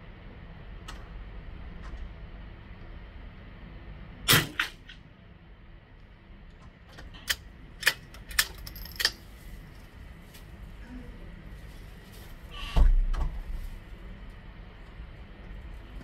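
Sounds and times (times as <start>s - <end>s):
suppressed rifle shot: 4.3s - 4.8s.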